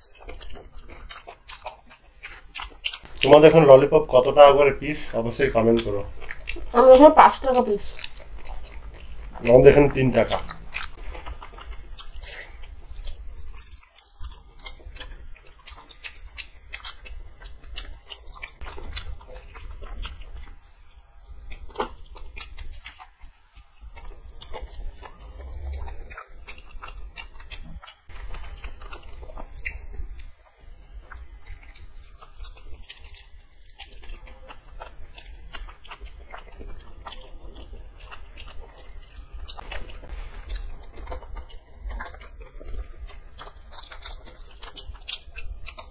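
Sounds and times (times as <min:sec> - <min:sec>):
people chewing food: 0:00.0 - 0:45.9
low hum: 0:23.6 - 0:33.0, 0:34.0 - 0:45.9.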